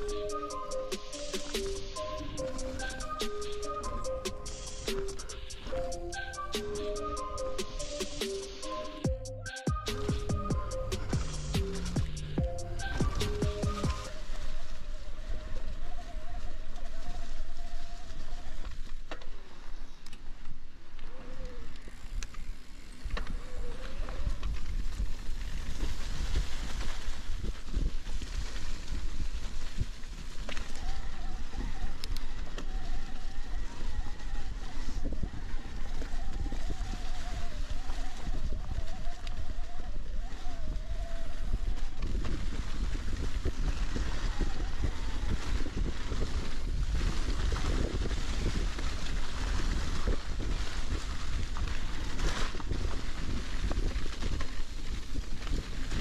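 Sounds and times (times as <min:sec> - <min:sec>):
tyres rolling on dirt trail: 0:00.0 - 0:56.0
wind rumble: 0:00.0 - 0:56.0
bike rattling and clicking: 0:18.5 - 0:56.0
electric bike motor whining: 0:20.9 - 0:25.7.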